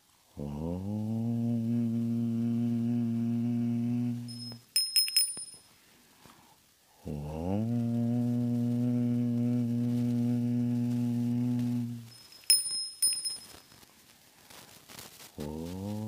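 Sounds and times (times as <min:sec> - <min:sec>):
deep chanted om: 0:00.4 - 0:04.3, 0:07.0 - 0:12.1, 0:15.4 - 0:16.0
bright bell strikes: 0:04.3 - 0:05.6, 0:12.1 - 0:13.6.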